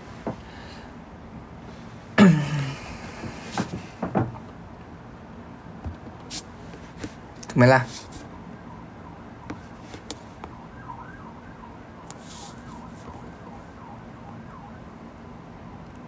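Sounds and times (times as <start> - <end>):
low steady hum: 0.0 - 16.0
faint siren wailing: 8.0 - 16.0.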